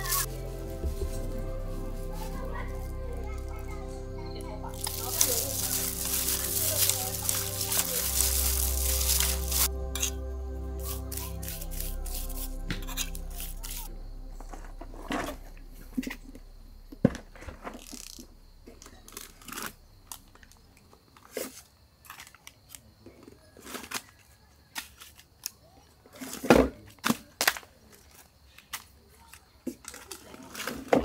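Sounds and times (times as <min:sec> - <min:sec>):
plastic food wrapping crinkling: 0:04.7 - 0:09.7.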